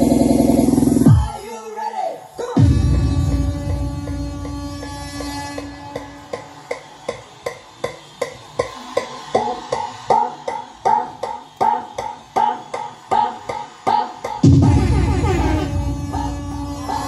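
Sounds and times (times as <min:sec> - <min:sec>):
electronic dance music: 0:00.0 - 0:17.0.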